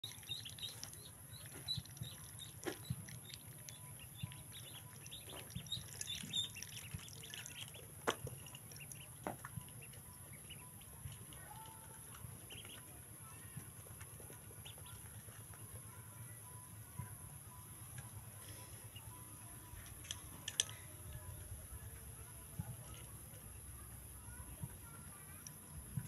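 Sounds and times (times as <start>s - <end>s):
ducklings peeping: 0.0s - 15.8s, 17.8s - 20.0s.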